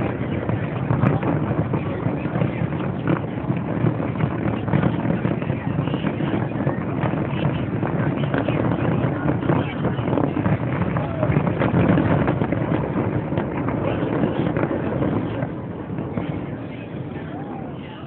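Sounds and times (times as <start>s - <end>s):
fireworks booming and crackling: 0.0s - 18.0s.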